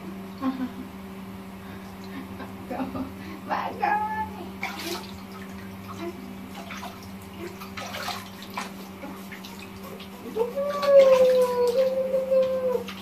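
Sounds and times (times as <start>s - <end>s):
water splashing in baby bath: 4.3s - 13.0s.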